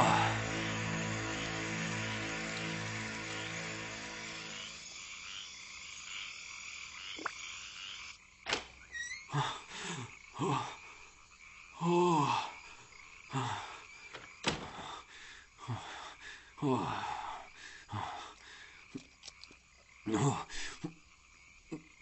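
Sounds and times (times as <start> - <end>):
music: 0.0 - 4.8
low croak-like vocal sounds: 9.2 - 14.0, 14.7 - 22.0.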